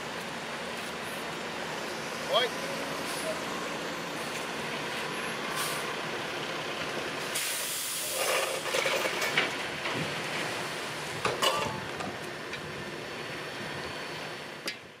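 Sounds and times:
heavy diesel engines running: 0:00.0 - 0:15.0
air brake hiss: 0:05.5 - 0:05.9, 0:07.3 - 0:08.3
metal clanks and knocks: 0:11.2 - 0:12.1.

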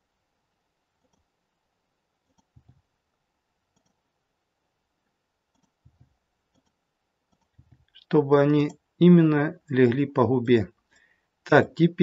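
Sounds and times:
computer mouse clicks: 0:01.0 - 0:01.3, 0:02.2 - 0:02.9, 0:03.7 - 0:04.1, 0:05.5 - 0:08.8.

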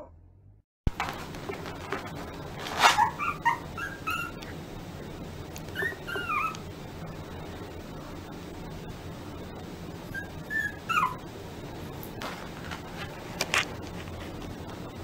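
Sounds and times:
noisy burst: 0:00.9 - 0:15.0
puppy yipping: 0:02.7 - 0:04.4, 0:05.7 - 0:06.6, 0:10.1 - 0:11.2
puppy whining: 0:02.7 - 0:04.6, 0:05.7 - 0:06.6, 0:10.1 - 0:11.3.

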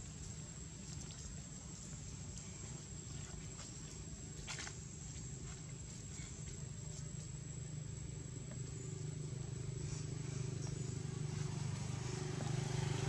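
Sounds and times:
vehicle engine running: 0:05.0 - 0:13.0.

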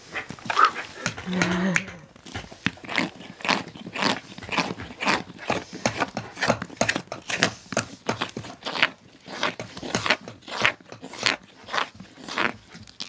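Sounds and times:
knife cutting wood: 0:00.3 - 0:13.0.

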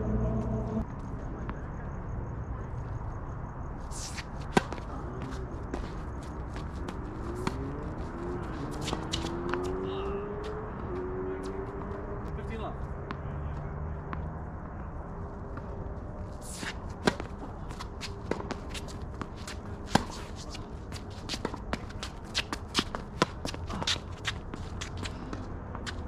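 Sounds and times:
footsteps and scuffing shoes: 0:03.9 - 0:10.6
racket hitting ball: 0:04.0 - 0:09.8, 0:16.4 - 0:25.1.

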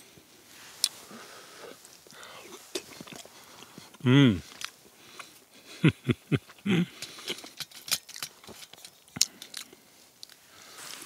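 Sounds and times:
man humming mm: 0:03.9 - 0:04.6, 0:05.9 - 0:07.0.

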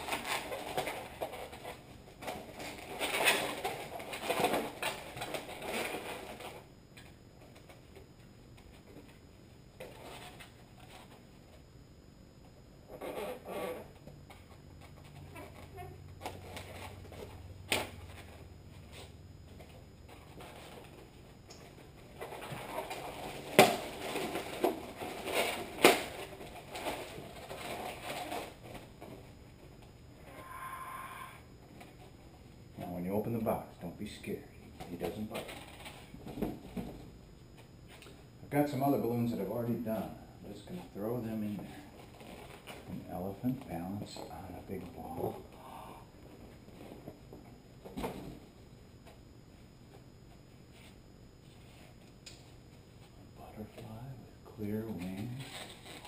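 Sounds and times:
balloons squeaking and rubbing: 0:12.9 - 0:13.9.

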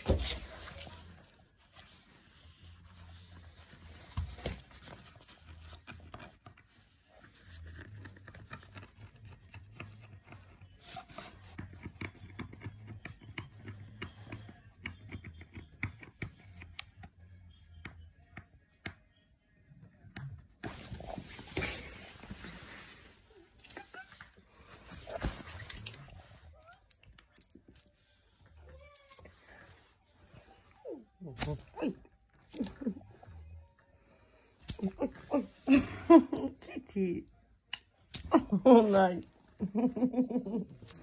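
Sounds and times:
rustling and scuffles: 0:20.7 - 0:26.6.

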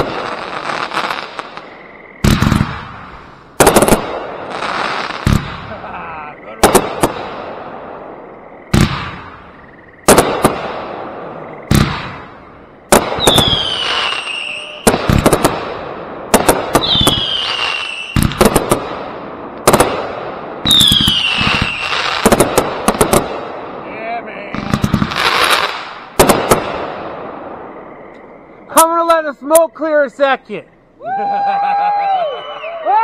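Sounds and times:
firework crackle: 0:00.0 - 0:06.0, 0:11.7 - 0:24.0, 0:24.6 - 0:27.1
firework bangs: 0:00.0 - 0:27.8
falling firework whistles: 0:12.9 - 0:15.6, 0:16.5 - 0:18.8, 0:20.6 - 0:22.4, 0:31.8 - 0:33.0.

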